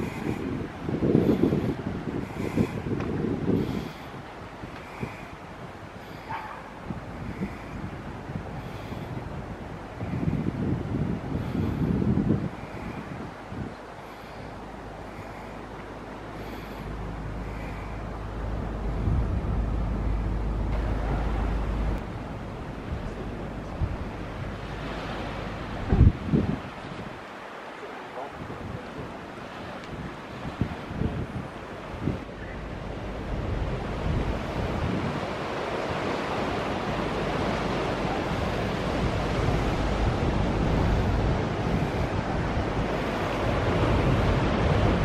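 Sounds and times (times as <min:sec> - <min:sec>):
sea surf breaking on rocks: 0:00.0 - 0:45.0
wind buffeting microphone: 0:00.0 - 0:45.0.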